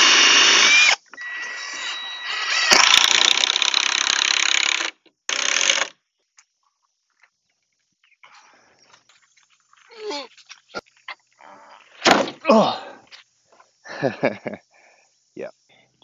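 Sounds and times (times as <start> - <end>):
cordless drill whining: 0.0 - 5.9.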